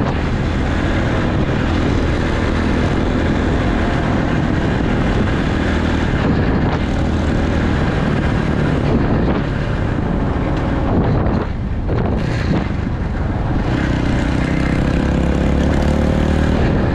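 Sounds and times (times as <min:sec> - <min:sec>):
dirt bike engine running: 0:00.0 - 0:16.9.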